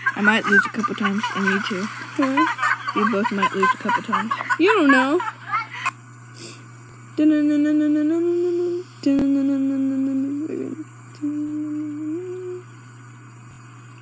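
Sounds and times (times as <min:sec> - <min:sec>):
steady low hum: 0:00.0 - 0:14.0
person humming: 0:07.2 - 0:12.7.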